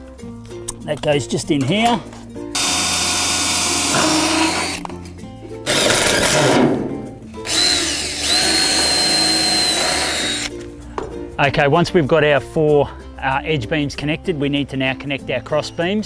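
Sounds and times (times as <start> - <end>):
cordless drill whining: 2.6 - 4.9, 5.6 - 6.2, 7.4 - 10.5.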